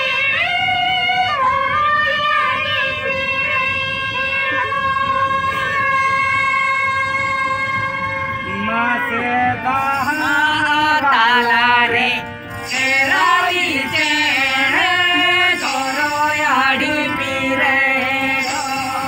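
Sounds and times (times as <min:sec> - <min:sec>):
harmoniums playing chords: 0:00.0 - 0:19.0
men singing: 0:08.4 - 0:19.0.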